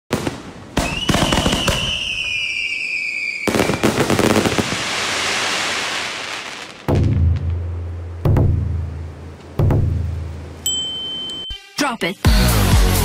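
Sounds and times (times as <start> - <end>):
firework crackling: 0.1 - 8.3
descending firework whistle: 0.8 - 6.7
firework launch bangs: 3.4 - 8.8.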